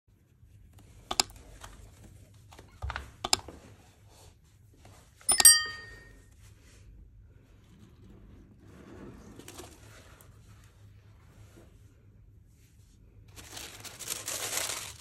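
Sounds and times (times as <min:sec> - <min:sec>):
computer mouse clicks: 0:01.1 - 0:01.4, 0:03.3 - 0:03.5
bell-like notification ding: 0:05.3 - 0:06.1.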